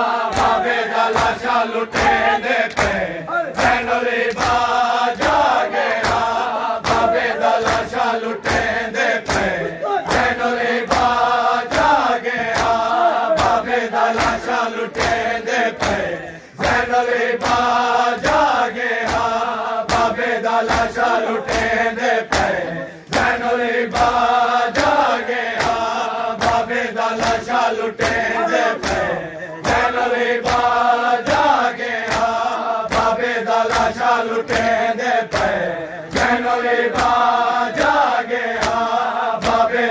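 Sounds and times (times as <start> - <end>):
men chanting in unison: 0.0 - 39.9
hands beating chests: 3.6 - 16.8.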